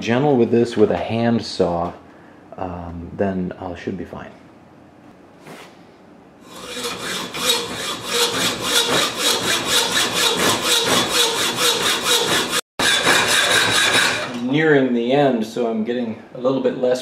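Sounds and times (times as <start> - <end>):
hacksaw cutting metal: 6.4 - 14.4.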